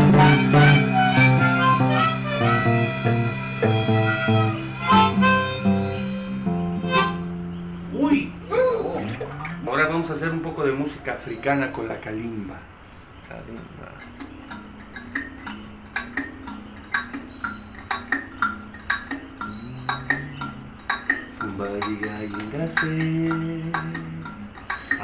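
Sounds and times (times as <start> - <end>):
nylon-string guitar notes: 0.0 - 10.8, 14.2 - 25.0
low keyboard notes: 0.0 - 11.0, 14.3 - 24.5
steady high tone: 0.0 - 11.0
wooden percussion clicks: 13.9 - 25.0.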